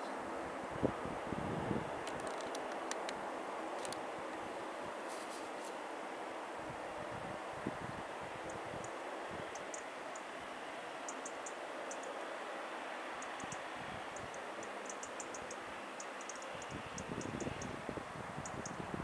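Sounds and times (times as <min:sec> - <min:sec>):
wind buffeting microphone: 0:00.6 - 0:04.0, 0:06.6 - 0:09.6, 0:16.6 - 0:19.0
faint high ticks: 0:02.0 - 0:03.2, 0:11.1 - 0:12.2, 0:13.2 - 0:17.8, 0:18.4 - 0:18.8.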